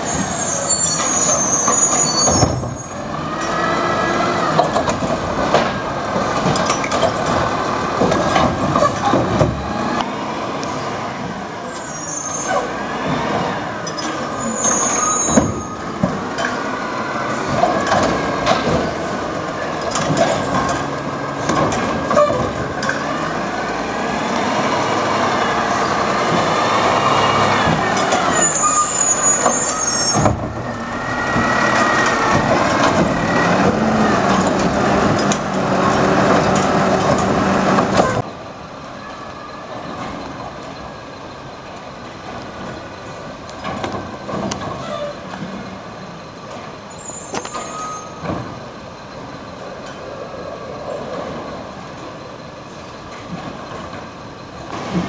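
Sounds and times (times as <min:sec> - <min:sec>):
garbage truck engine running: 0:02.3 - 0:11.5, 0:15.4 - 0:50.2.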